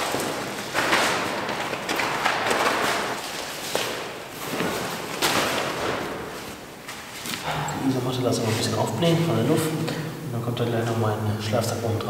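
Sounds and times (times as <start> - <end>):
groundsheet rustling and flapping: 0.0 - 7.4.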